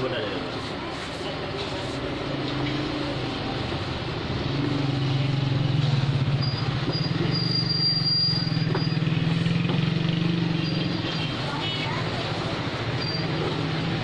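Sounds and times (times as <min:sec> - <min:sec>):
vehicle engine running: 0:08.4 - 0:14.0.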